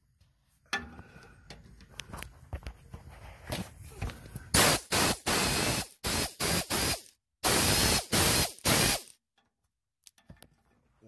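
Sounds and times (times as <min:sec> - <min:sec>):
air tool hissing bursts: 0:04.5 - 0:09.2.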